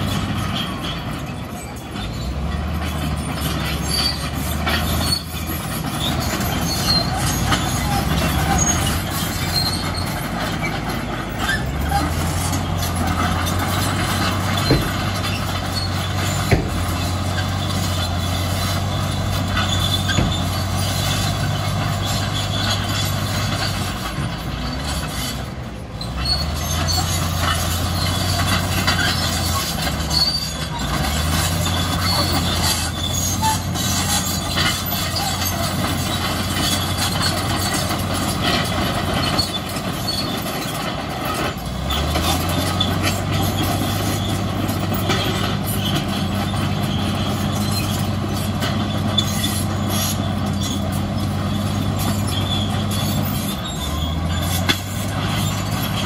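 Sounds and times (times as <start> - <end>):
bulldozer diesel engine running: 0.0 - 56.0
sharp metallic knocks: 13.2 - 17.3, 19.2 - 21.2.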